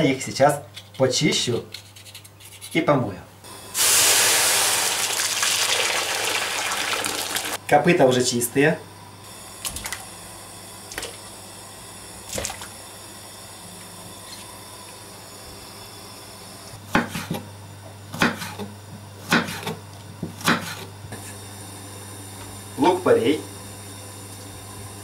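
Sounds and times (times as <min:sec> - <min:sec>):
trotters splashing into pot of water: 0:04.2 - 0:07.6, 0:12.3 - 0:12.7
steady low hum: 0:07.6 - 0:25.0
knife chopping on wooden board: 0:16.9 - 0:17.4, 0:18.1 - 0:20.9.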